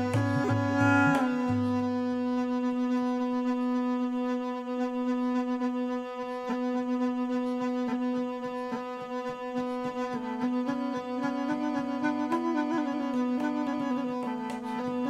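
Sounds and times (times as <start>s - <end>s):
gourd pipe playing: 0.0s - 2.3s.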